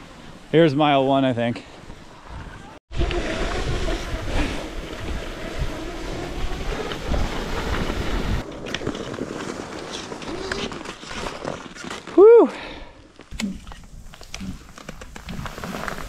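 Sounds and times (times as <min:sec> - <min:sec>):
wind rushing over microphone: 0:02.2 - 0:08.5.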